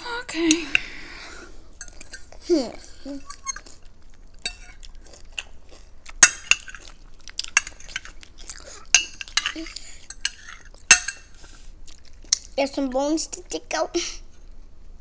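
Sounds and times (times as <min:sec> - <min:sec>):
forks clinking against glass bowls: 0:04.4 - 0:04.8, 0:08.9 - 0:11.3.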